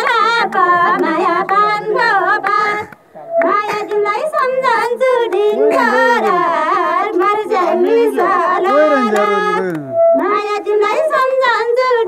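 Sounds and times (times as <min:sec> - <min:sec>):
women singing folk song: 0:00.0 - 0:12.0.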